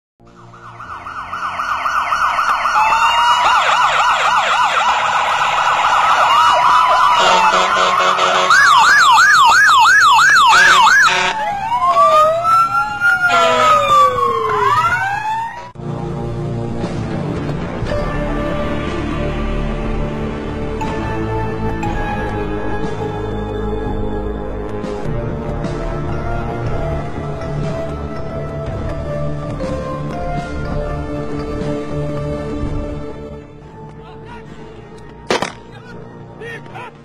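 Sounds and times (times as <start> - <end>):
police sirens: 0.2 - 16.0.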